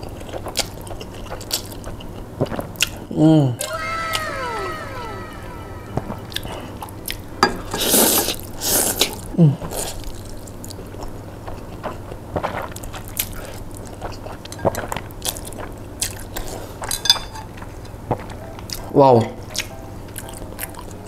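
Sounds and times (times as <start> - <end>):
wet chewing: 0.0 - 3.0, 8.8 - 17.0
low sound falling in pitch: 3.6 - 7.4.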